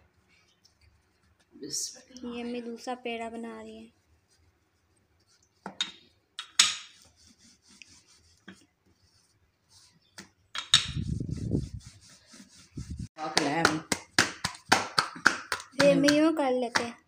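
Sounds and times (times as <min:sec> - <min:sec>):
dough rubbing: 0:03.6 - 0:05.8, 0:06.7 - 0:16.4
hands tapping dough on countertop: 0:13.2 - 0:17.0.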